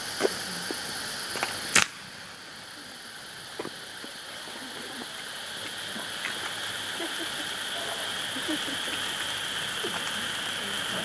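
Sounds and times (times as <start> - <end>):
firework fountains hissing: 0.0 - 11.0.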